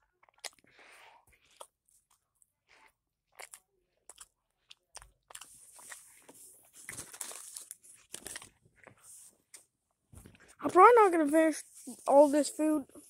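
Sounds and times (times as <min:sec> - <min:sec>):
chewing and crunching food: 0:00.0 - 0:09.7
paper crinkling: 0:05.4 - 0:09.7.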